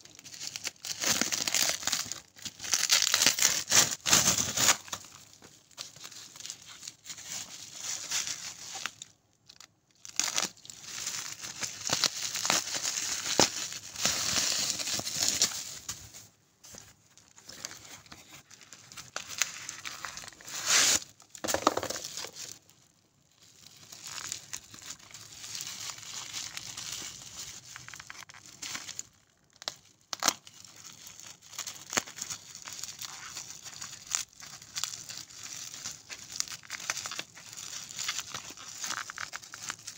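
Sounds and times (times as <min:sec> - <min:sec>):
cardboard tearing and crinkling: 0:00.2 - 0:05.2, 0:10.0 - 0:15.9, 0:17.4 - 0:22.6, 0:29.6 - 0:39.9.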